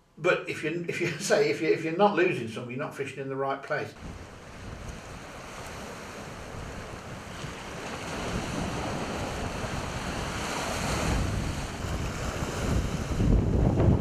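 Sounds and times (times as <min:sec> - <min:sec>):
waves washing against rocks: 0:04.0 - 0:14.0
wind buffeting microphone: 0:04.0 - 0:14.0.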